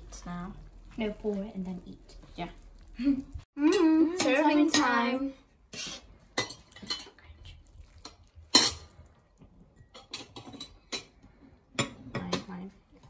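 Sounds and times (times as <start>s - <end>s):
metal tongs clinking on pans: 6.4s - 7.2s, 8.0s - 8.9s, 9.8s - 11.2s.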